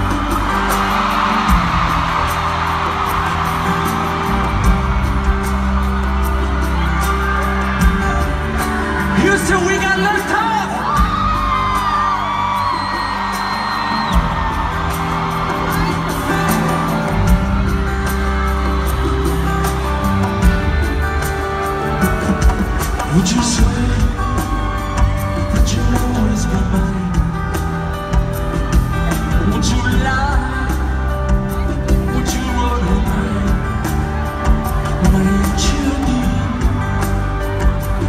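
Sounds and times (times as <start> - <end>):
fans whooping: 0.0 - 27.9
loud pop concert music: 0.0 - 38.0
person singing: 18.9 - 38.0.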